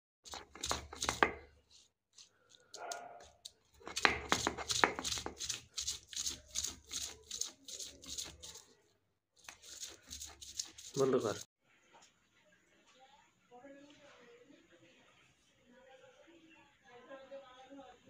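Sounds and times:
stone grinding on stone: 0.3 - 8.8, 9.4 - 11.5.

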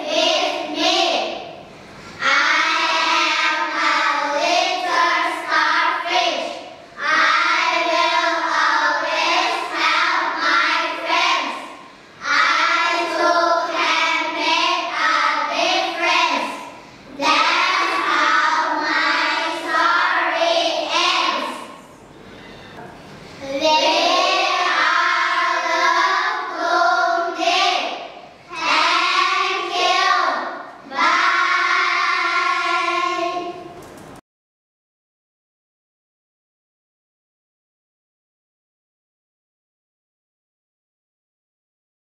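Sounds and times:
children singing unaccompanied: 0.0 - 21.8, 23.4 - 33.8.

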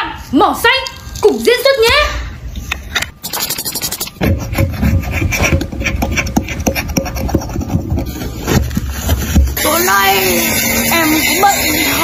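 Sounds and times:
metal spatula scraping powder: 3.2 - 12.0.

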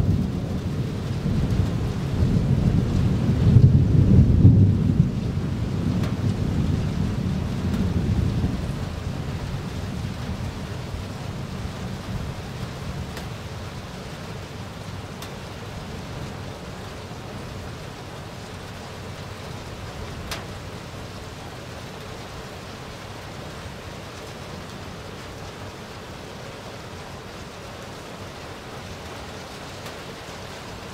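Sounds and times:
thunder rumbling: 0.0 - 16.6
steady rain falling: 0.0 - 30.9.

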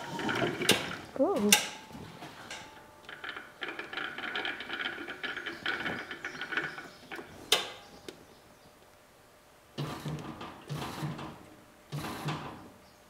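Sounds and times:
metallic rattling and clicking: 0.0 - 7.8.

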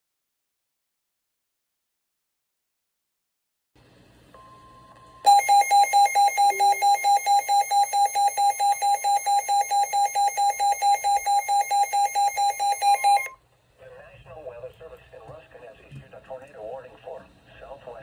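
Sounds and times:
rapidly pulsing alarm beep: 5.3 - 13.4.

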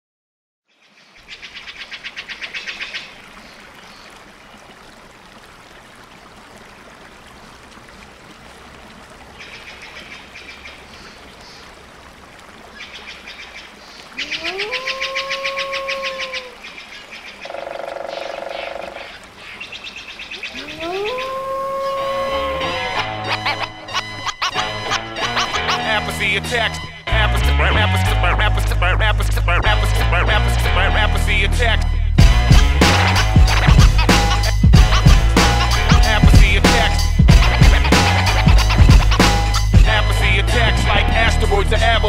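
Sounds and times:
calls sliding up in pitch: 14.2 - 16.8, 17.4 - 25.3.

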